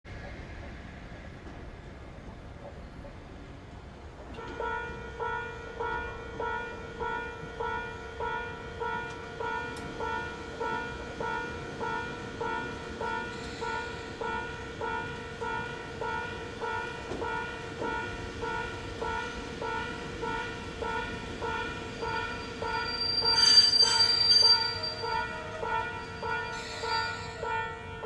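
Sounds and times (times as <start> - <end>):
electric train approaching: 0.2 - 28.0
level-crossing warning bell ringing: 4.3 - 28.0
train high-pitched squeal: 13.0 - 14.4, 21.5 - 28.0.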